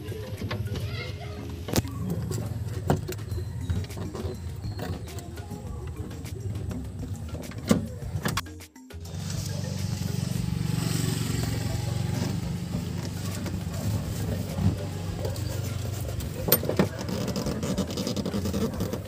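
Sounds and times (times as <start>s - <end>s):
vehicle engine running: 9.0s - 19.0s.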